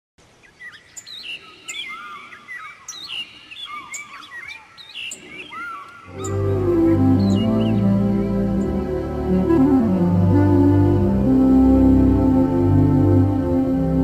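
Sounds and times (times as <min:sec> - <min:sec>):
birds chirping: 0:00.2 - 0:14.0
music: 0:06.1 - 0:14.0.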